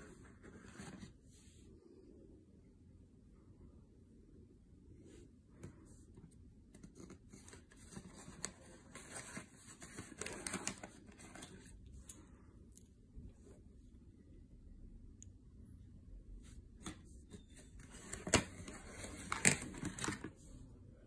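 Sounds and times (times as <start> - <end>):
cardboard and cables rustling: 6.7 - 11.8, 16.8 - 20.4.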